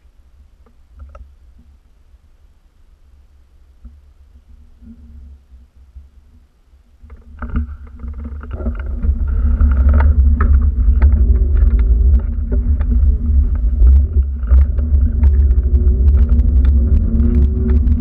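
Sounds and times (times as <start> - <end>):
clicks and rattles: 7.0 - 18.0
wind buffeting microphone: 7.4 - 18.0.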